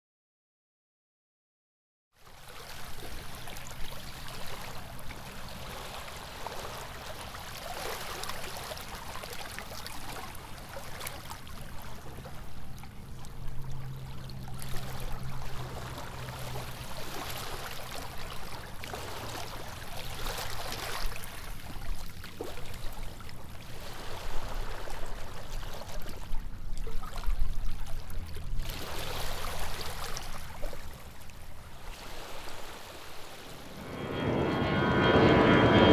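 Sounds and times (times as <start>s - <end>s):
low steady hum: 33.5s - 35.9s.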